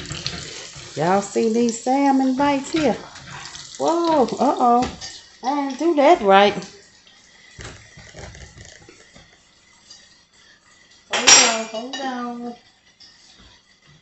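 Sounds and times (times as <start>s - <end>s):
metal spatula clinking on plate: 11.1s - 12.2s
wire rack clattering on plate: 11.1s - 12.2s.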